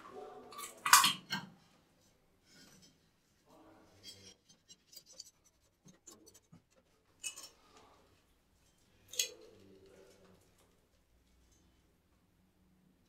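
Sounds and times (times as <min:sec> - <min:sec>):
metal plumbing fittings clinking: 0:04.0 - 0:07.8.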